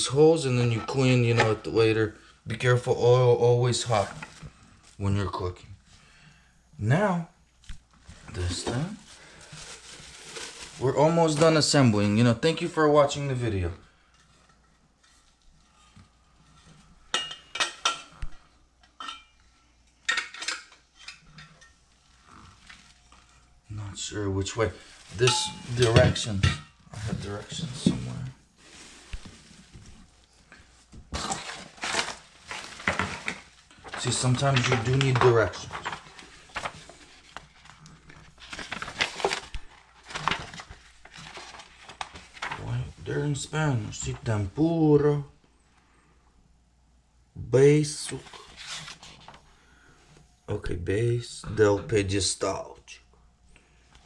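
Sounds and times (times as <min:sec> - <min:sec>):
paper pages rustling: 0:07.9 - 0:12.3, 0:26.9 - 0:44.4, 0:48.0 - 0:49.5.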